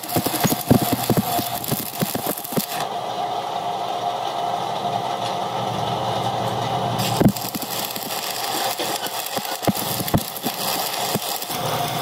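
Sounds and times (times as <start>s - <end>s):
arc welding crackle and sizzle: 0.0s - 3.1s, 6.1s - 12.0s
steady machine hum: 0.0s - 12.0s.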